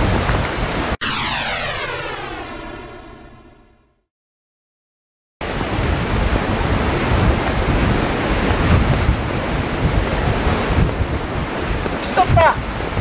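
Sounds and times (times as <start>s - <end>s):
wind buffeting microphone: 0.0s - 1.0s, 5.4s - 13.0s.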